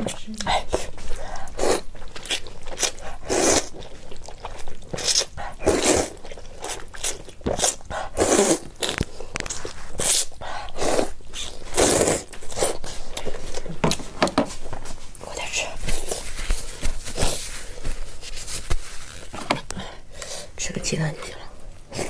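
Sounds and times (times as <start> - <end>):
wet noodle slurping: 0.7 - 13.7.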